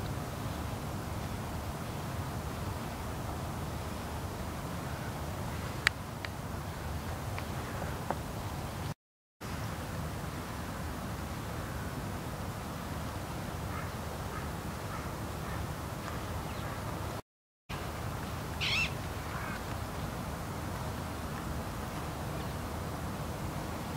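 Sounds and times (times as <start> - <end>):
outdoor background noise: 0.0 - 23.9
harsh bird call: 18.6 - 19.0.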